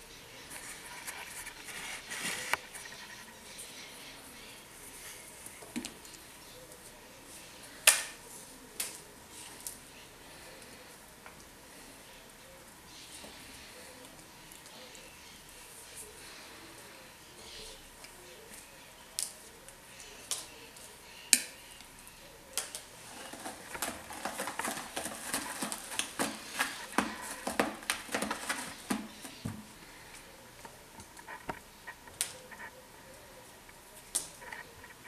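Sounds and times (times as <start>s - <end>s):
cat claws scratching rope: 22.9s - 29.5s.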